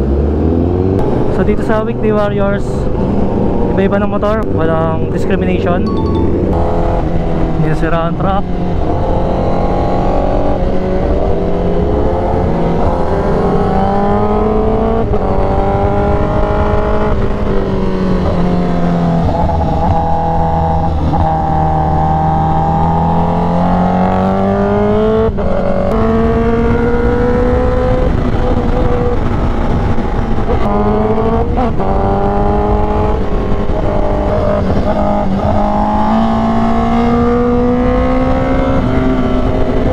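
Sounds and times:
motorcycle engine revving: 0:08.4 - 0:39.9.

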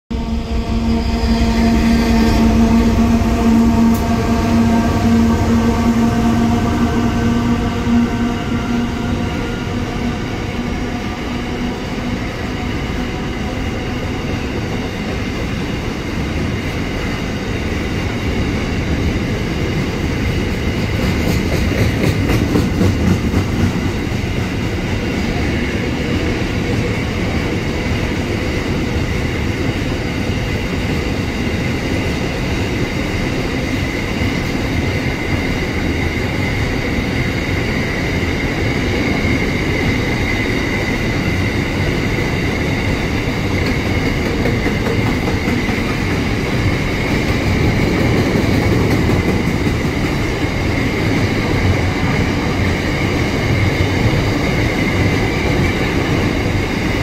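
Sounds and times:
freight train wheels rumbling and rattling: 0:00.1 - 0:57.0
locomotive engine hum: 0:00.1 - 0:57.0
train wheels clacking: 0:18.9 - 0:27.5, 0:29.6 - 0:57.0.

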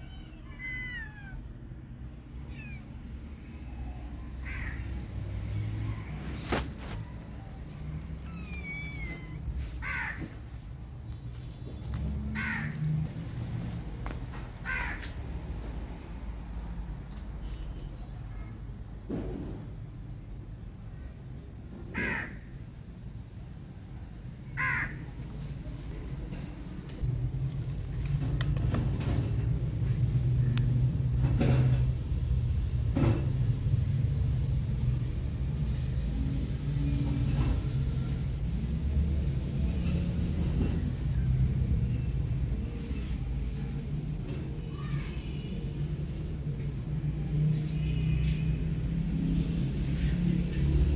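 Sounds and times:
crow cawing: 0:04.4 - 0:05.0, 0:08.6 - 0:10.4, 0:12.3 - 0:12.8, 0:14.6 - 0:15.2, 0:21.9 - 0:22.5, 0:24.6 - 0:25.1.

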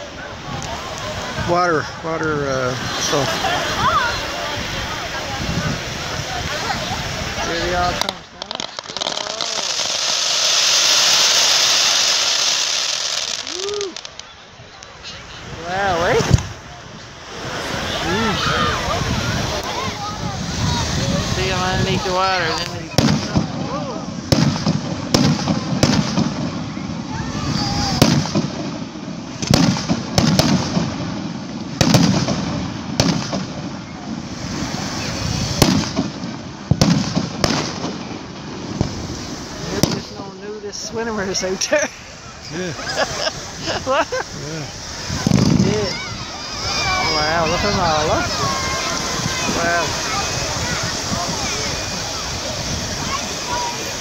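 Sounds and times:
firework fountains hissing: 0:00.0 - 0:54.0.

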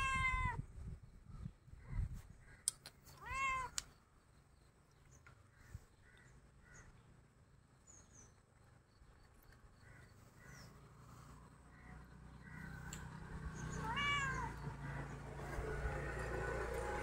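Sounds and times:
cat meowing: 0:00.0 - 0:00.6, 0:03.2 - 0:03.8, 0:13.7 - 0:14.6
distant bird calls: 0:01.0 - 0:17.0.

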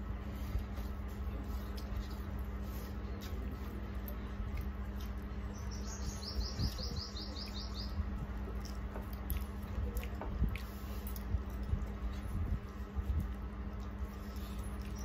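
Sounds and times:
steady low hum: 0:00.0 - 0:15.0
wet clicks of eating by hand: 0:06.6 - 0:12.7.

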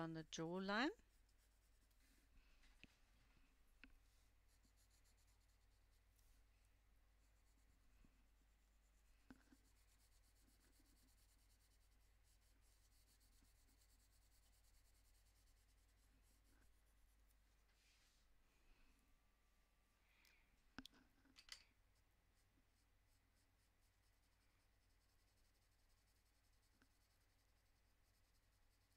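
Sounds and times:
colored pencil scratching on paper: 0:00.0 - 0:02.3, 0:03.8 - 0:18.2, 0:21.7 - 0:28.9
pencil ticks on paper: 0:00.7 - 0:02.1, 0:08.4 - 0:17.4, 0:22.3 - 0:28.9.

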